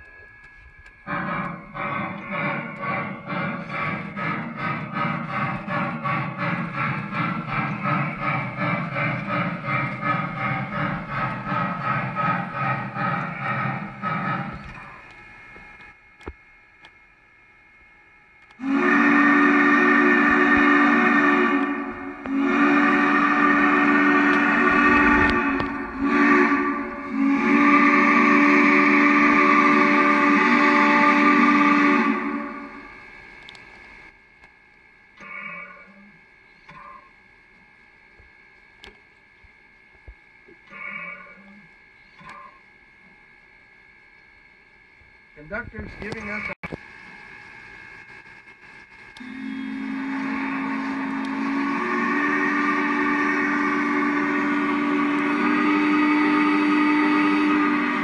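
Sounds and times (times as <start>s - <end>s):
steam whistle through speaker: 18.6s - 33.0s, 49.2s - 58.0s.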